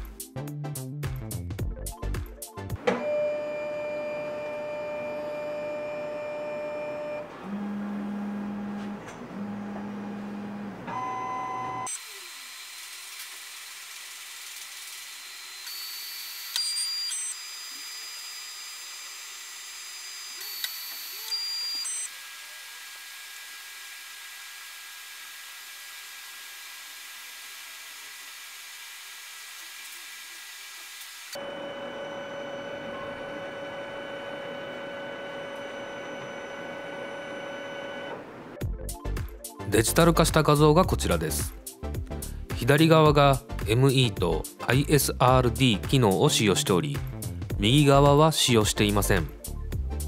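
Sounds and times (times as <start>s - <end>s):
film scanner motor whine: 2.8s - 38.6s
short low hums: 3.1s - 11.9s.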